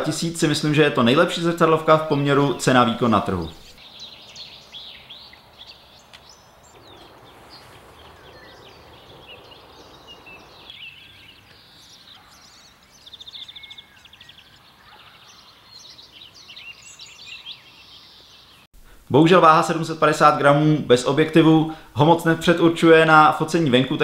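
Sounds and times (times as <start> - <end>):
soft rushing background noise: 0.0 - 13.0
small birds chirping: 0.0 - 18.7.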